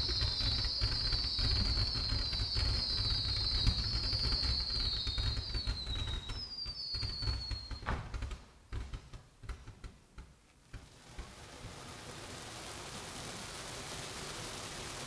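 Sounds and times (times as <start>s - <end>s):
spark fountain hiss: 0.0s - 7.8s, 10.7s - 15.0s
firework whistles falling: 0.0s - 8.9s, 10.7s - 15.0s
firework crackling pops: 0.0s - 15.0s.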